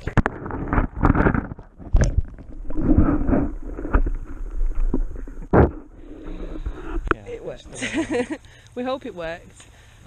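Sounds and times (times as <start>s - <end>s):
muffled underwater water sloshing: 0.0s - 7.8s.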